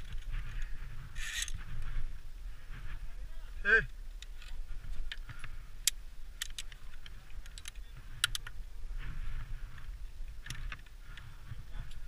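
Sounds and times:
carabiners clicking on metal: 0:00.0 - 0:01.7, 0:04.1 - 0:08.6.

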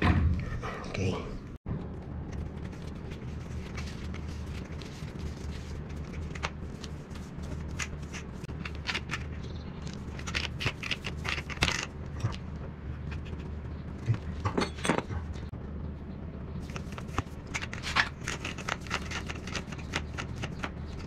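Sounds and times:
steady low hum: 0:00.0 - 0:21.0
tape crackly rustles: 0:02.2 - 0:13.6.

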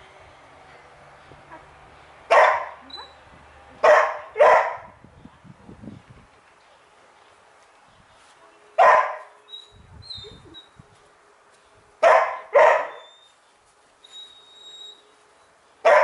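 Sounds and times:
dog barking: 0:02.3 - 0:03.2, 0:03.8 - 0:04.9, 0:08.8 - 0:09.3, 0:12.0 - 0:13.1.

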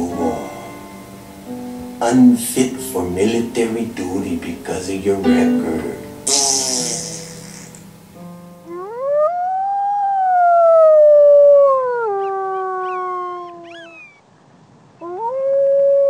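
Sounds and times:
coyote howling: 0:08.7 - 0:14.3, 0:15.0 - 0:16.0
coyote yips: 0:11.6 - 0:14.2, 0:15.0 - 0:16.0.

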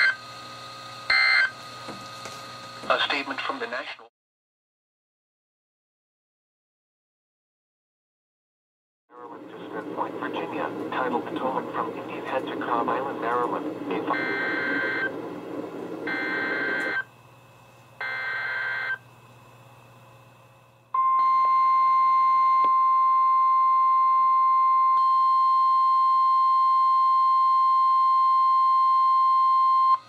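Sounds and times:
loud steady warning alarm tone: 0:01.1 - 0:01.6, 0:09.4 - 0:17.1, 0:18.0 - 0:19.0
warbling digital header tones: 0:13.8 - 0:15.2.

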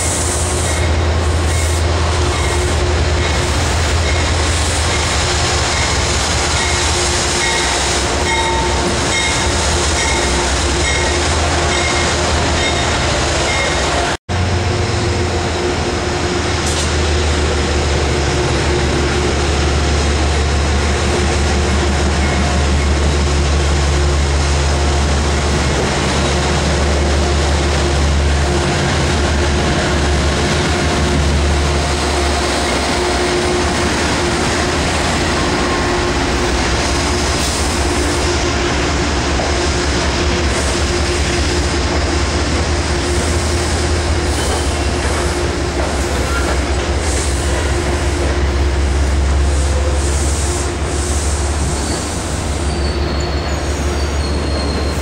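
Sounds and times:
diesel locomotive droning: 0:00.0 - 0:55.0
train wheels rolling on rails: 0:00.0 - 0:55.0.

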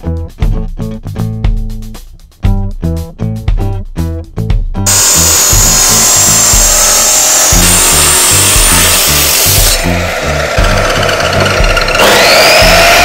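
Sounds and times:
cut-off disc grinding steel: 0:04.9 - 0:13.0.

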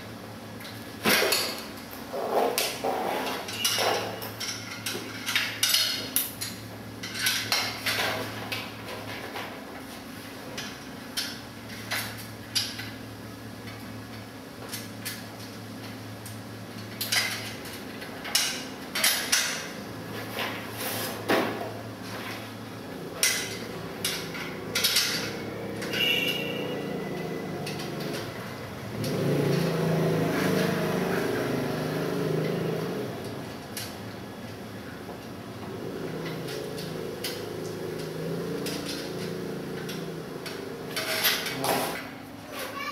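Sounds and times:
metal struts clicking and knocking: 0:23.2 - 0:26.8.

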